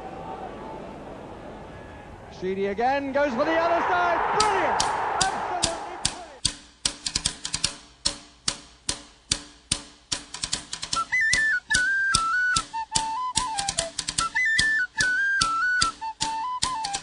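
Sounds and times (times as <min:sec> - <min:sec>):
sharp drum hits: 0:04.3 - 0:06.3
high tin whistle melody: 0:11.0 - 0:17.0.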